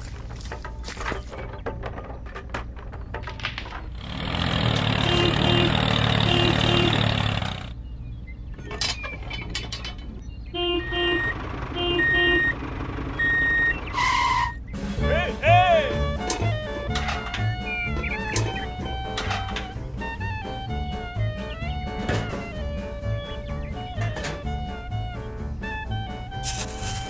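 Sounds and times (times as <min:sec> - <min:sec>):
toy truck electronic beeps: 0:10.4 - 0:14.9, 0:16.0 - 0:19.8.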